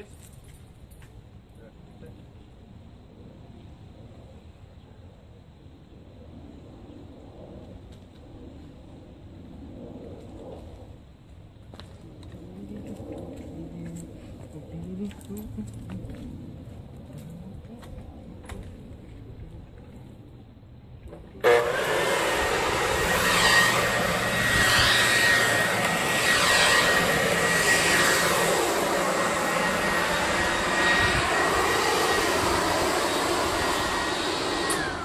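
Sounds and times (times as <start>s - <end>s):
leaf blower motor spinning down: 21.1s - 35.0s
leaf blower whining: 21.1s - 35.0s.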